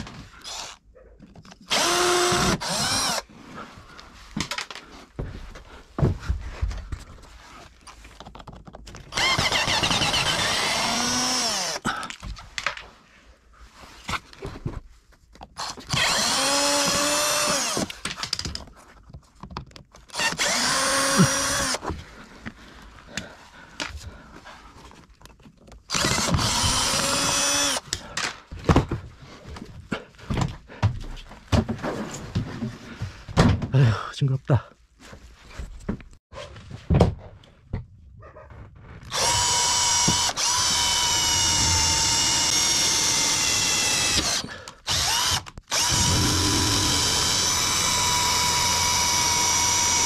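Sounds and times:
power drill running: 0.4s - 0.8s, 1.7s - 3.2s, 9.1s - 11.8s, 15.6s - 17.9s, 20.1s - 21.8s, 25.9s - 27.8s, 39.1s - 50.0s.

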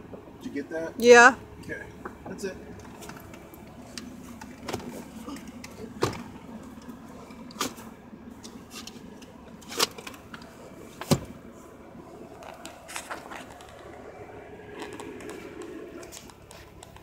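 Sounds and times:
seatbelt and armrest clicks and knocks: 8.4s - 11.3s.

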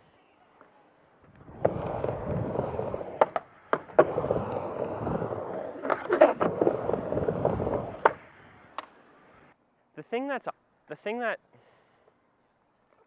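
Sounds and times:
skateboard wheels rumbling: 0.6s - 9.5s
skateboard clacks: 1.3s - 9.0s.

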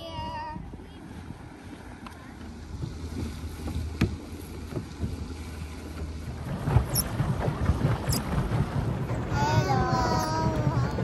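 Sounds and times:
wind rumbling on microphone: 0.0s - 11.0s
bumps on plastic pedal boat: 6.0s - 11.0s.

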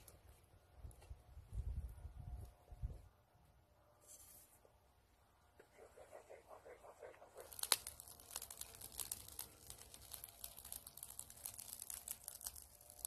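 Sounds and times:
campfire crackling and popping: 6.3s - 13.0s.

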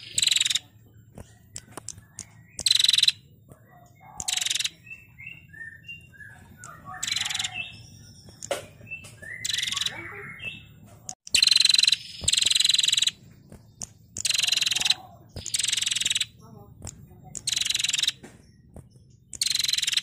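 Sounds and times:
bird rattling trills: 0.0s - 10.6s, 11.3s - 20.0s
soft bird chirps: 0.0s - 20.0s.

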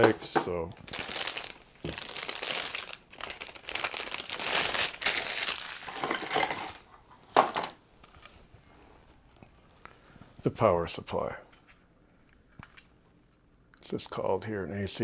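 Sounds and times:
plastic packaging crinkling: 0.7s - 8.4s.

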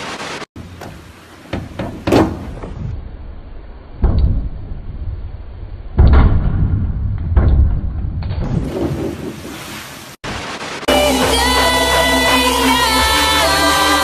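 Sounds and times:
diving springboard thuds: 4.0s - 9.6s.

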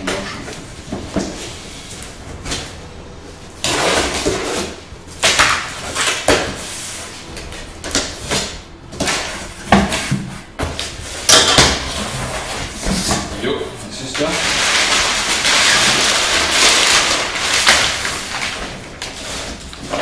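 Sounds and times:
packing tape being cut: 3.6s - 13.2s, 14.2s - 20.0s
cardboard flaps scraping: 14.3s - 20.0s.

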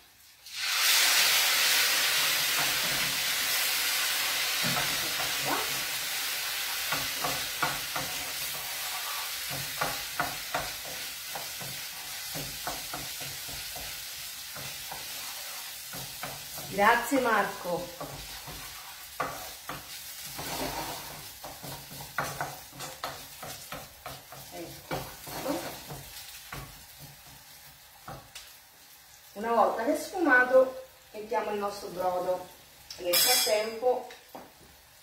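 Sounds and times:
wine hissing in hot pan: 0.0s - 29.3s
wooden spoon scraping pan: 6.8s - 27.4s.

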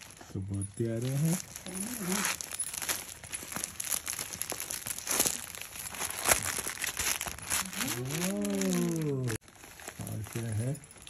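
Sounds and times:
plastic packaging crinkling: 0.0s - 11.0s
person's drawn-out exclamation: 7.6s - 9.4s.

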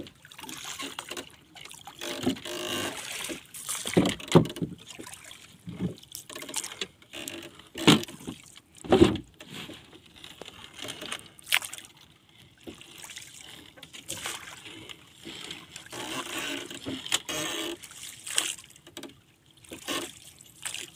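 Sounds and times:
knocks on wooden boat: 3.9s - 4.8s, 7.8s - 9.3s.

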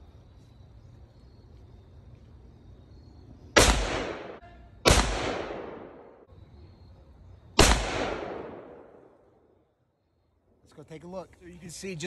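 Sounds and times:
rifle shots: 3.6s - 6.2s, 7.6s - 9.0s.

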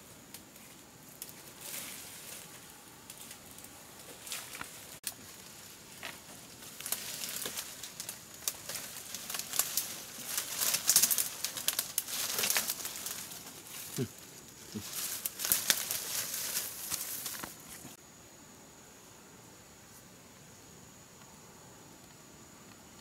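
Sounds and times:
leaves and twigs crackling: 0.0s - 18.0s.

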